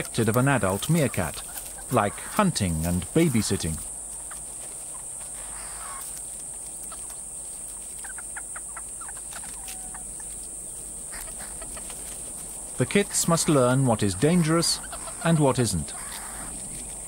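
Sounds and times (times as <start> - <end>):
meerkats chirping: 0.0 - 12.1, 12.7 - 17.0
high-pitched hiss: 0.0 - 17.0.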